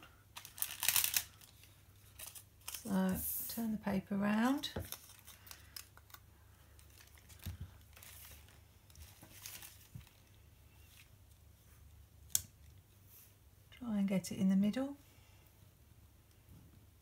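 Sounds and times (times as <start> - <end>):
sticker peeling paper rustle: 0.4 - 3.2, 4.8 - 10.3.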